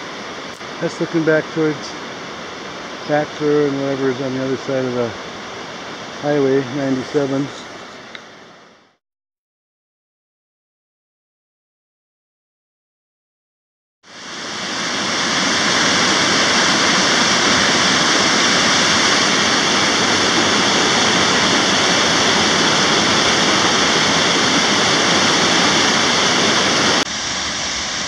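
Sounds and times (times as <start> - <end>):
rapids rushing over rocks: 0.0 - 8.4, 14.1 - 28.0.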